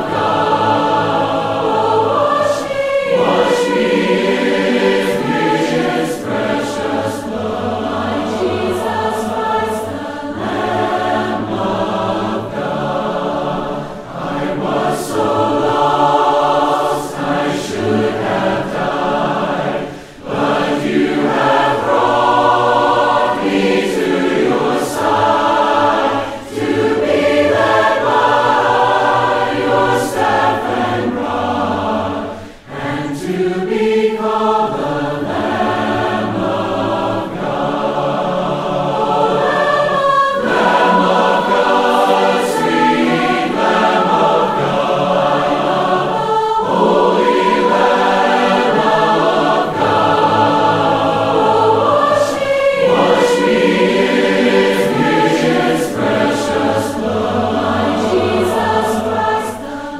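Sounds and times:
a cappella group singing: 0.0 - 59.9
singers breathing: 13.8 - 14.2, 19.8 - 20.3, 26.2 - 26.5, 32.2 - 33.1.

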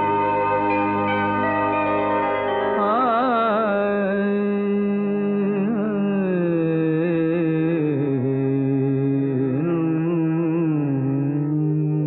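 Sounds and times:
tanpura drone: 0.0 - 4.2
man singing wordless melody: 2.8 - 12.0.

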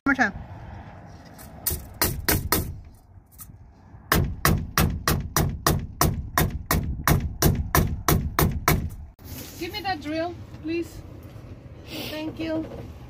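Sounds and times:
hammer striking metal hinge: 1.6 - 3.5.

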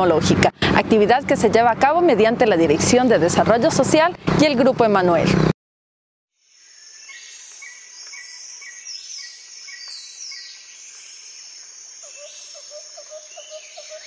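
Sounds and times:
falling bird calls: 6.4 - 14.0
insect drone: 6.4 - 14.0.

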